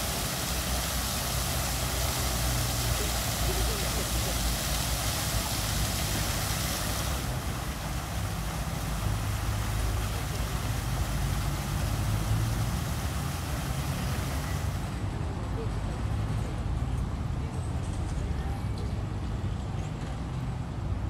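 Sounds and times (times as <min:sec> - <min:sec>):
fountain water splashing: 0:00.0 - 0:15.8.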